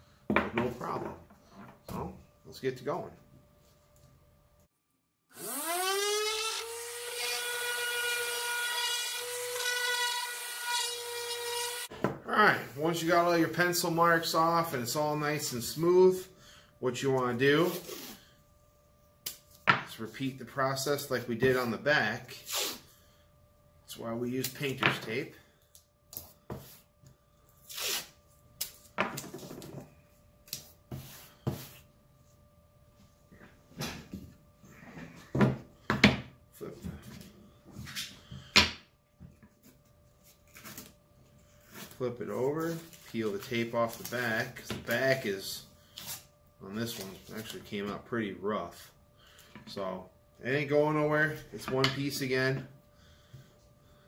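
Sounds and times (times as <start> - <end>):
orbital sander sanding wood: 5.4 - 8.3
faint steady hum: 11.0 - 54.0
tape tearing off roll: 27.6 - 28.8.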